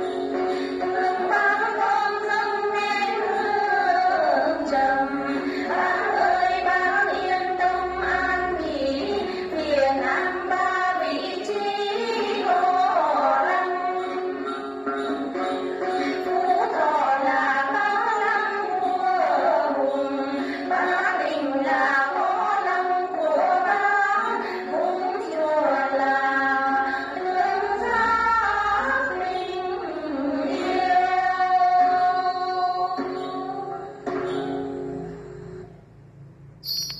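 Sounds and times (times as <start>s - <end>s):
women singing in chorus: 0.0s - 33.9s
plucked lutes: 31.8s - 35.6s.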